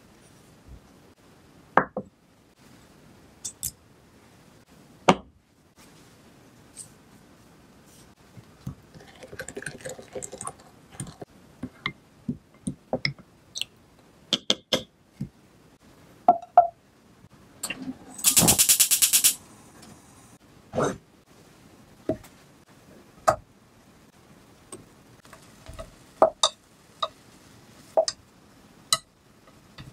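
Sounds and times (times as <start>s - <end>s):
pepper shaker rattling over bowl: 18.2s - 19.4s.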